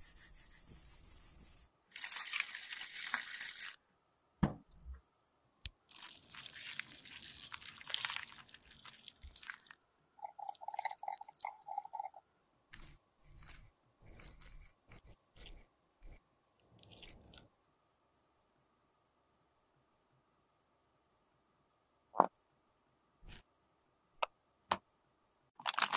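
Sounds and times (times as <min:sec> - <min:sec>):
wet crackling and squishing cream: 0:05.8 - 0:09.8, 0:12.7 - 0:17.5.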